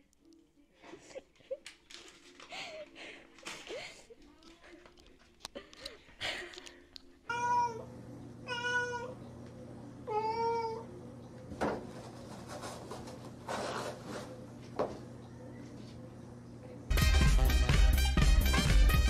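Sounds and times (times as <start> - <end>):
cat meowing: 7.3 - 7.9, 8.5 - 9.2.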